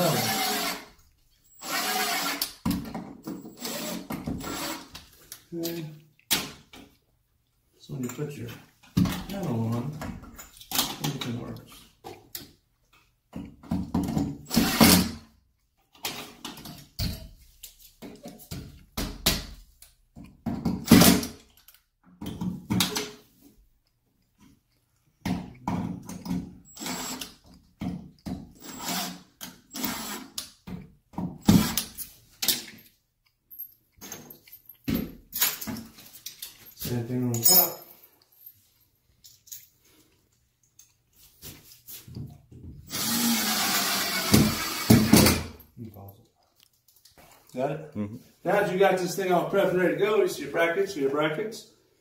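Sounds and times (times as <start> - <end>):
cordless drill driving screws: 0.0 - 0.9, 1.5 - 2.6, 3.4 - 5.0, 14.4 - 15.2, 26.7 - 27.4, 28.6 - 30.4, 31.4 - 32.0, 42.9 - 45.4.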